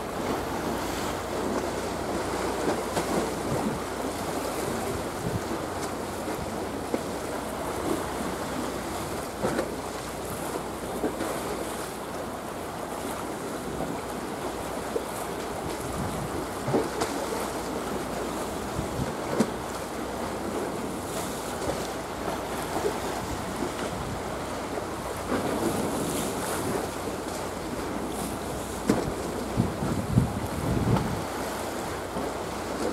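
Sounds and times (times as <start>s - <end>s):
small waves washing: 0.0s - 32.9s
wind noise on microphone: 2.6s - 6.6s, 15.6s - 17.3s, 18.6s - 19.6s, 28.3s - 32.9s.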